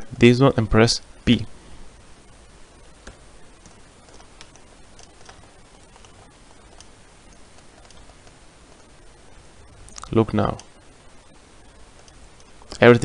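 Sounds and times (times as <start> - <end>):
microphone hiss: 0.0 - 13.0
computer mouse and keyboard clicks: 3.0 - 8.3.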